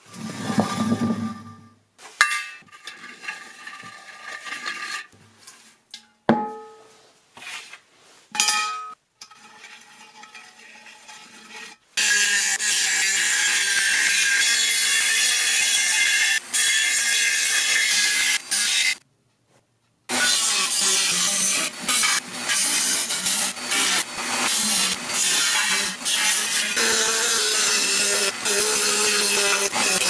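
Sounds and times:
rotary tool grinding metal: 0:00.0 - 0:01.7, 0:02.7 - 0:05.2, 0:09.2 - 0:19.0, 0:20.1 - 0:30.0.

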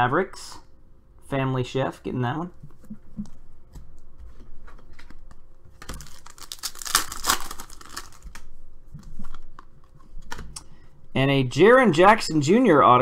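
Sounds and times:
packs clicking and rustling: 0:05.8 - 0:08.4
foil pack tearing and crinkling: 0:05.8 - 0:08.5.

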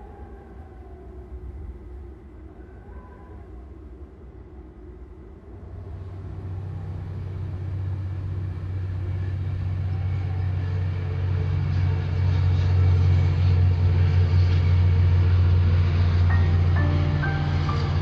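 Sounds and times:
low steady rumble: 0:03.7 - 0:18.0.

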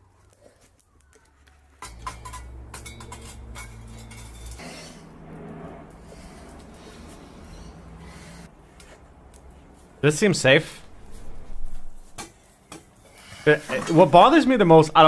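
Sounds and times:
metal tongs clinking on crucible: 0:01.8 - 0:04.6
steady low hum: 0:01.8 - 0:12.2.

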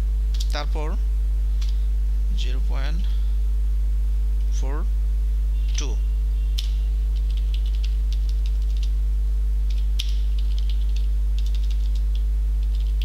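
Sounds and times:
low mains hum: 0:00.0 - 0:13.0.

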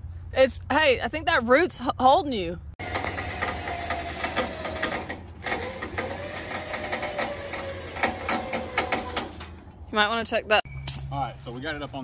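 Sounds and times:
electric winch motor whining: 0:02.8 - 0:09.5.

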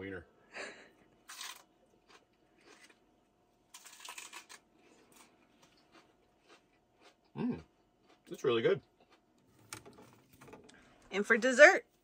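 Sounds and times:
lettuce being bitten and chewed: 0:01.2 - 0:03.1, 0:03.7 - 0:08.4.

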